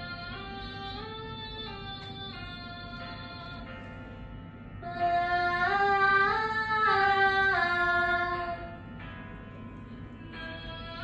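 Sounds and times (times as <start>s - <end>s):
woman singing vocal warm-up: 4.8s - 8.8s, 10.2s - 11.0s.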